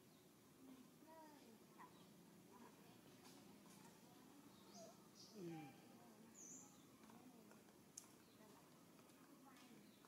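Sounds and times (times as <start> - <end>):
faint outdoor hiss: 0.0 - 10.0
faint high chirp: 4.4 - 7.0.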